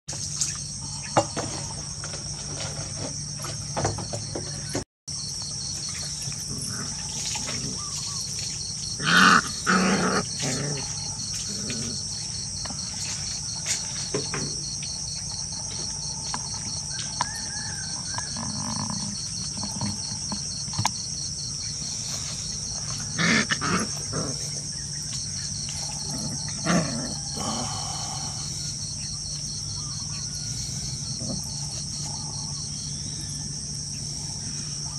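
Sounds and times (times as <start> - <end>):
crickets chirping: 0.1 - 34.9
puppies growling: 6.4 - 14.0, 18.2 - 20.9, 21.8 - 28.8, 29.8 - 32.6.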